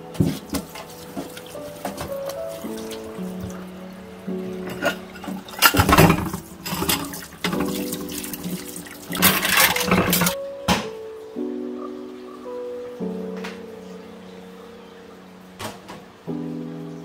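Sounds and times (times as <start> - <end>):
soft background music: 0.0 - 17.0
tap water running into sink: 0.1 - 3.7, 4.6 - 10.4.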